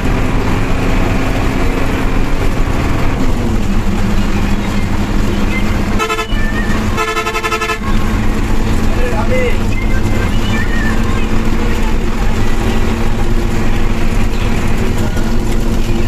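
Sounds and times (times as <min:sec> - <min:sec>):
bus engine running: 0:00.0 - 0:16.0
vehicle horn blasts: 0:05.9 - 0:08.2.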